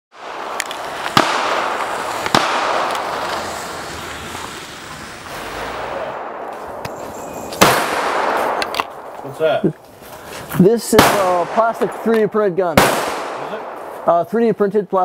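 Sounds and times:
loud gunshots with echo: 0:00.2 - 0:03.7, 0:05.8 - 0:09.6, 0:10.8 - 0:14.3
fainter gunshots: 0:00.2 - 0:04.3, 0:05.3 - 0:09.6, 0:10.8 - 0:14.3.

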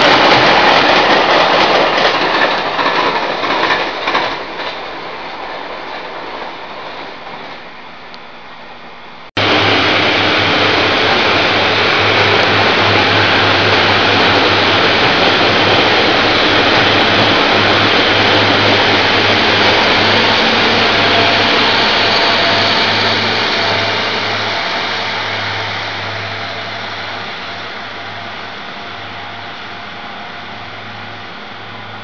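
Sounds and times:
diesel train engine droning: 0:07.6 - 0:32.0.

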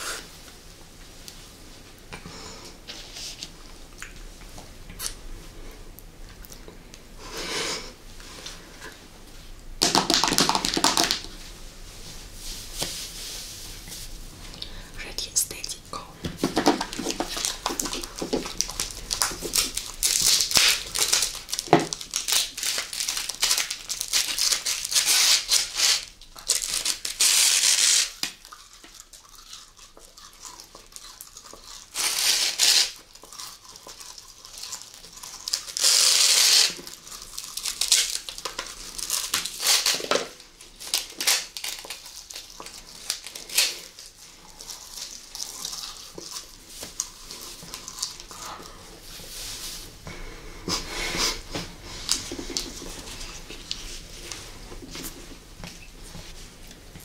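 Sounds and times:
crinkling plastic rustle: 0:08.3 - 0:50.0, 0:50.8 - 0:57.0
sticky chewing: 0:16.2 - 0:48.8.

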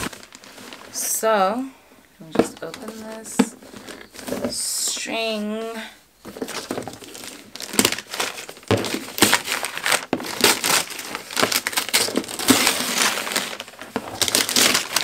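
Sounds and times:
paper packaging crinkling: 0:00.0 - 0:01.2, 0:06.3 - 0:15.0.

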